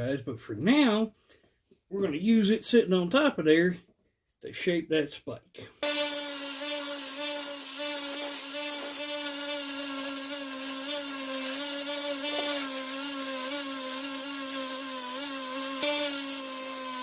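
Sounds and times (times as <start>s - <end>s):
belt grinder motor whine: 5.8s - 17.0s.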